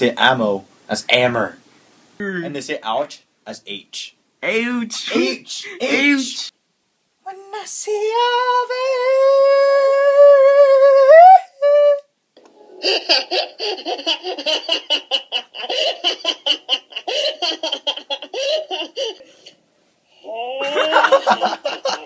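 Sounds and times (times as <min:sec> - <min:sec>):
rapid choppy laughter: 0:12.8 - 0:19.3, 0:20.6 - 0:22.0.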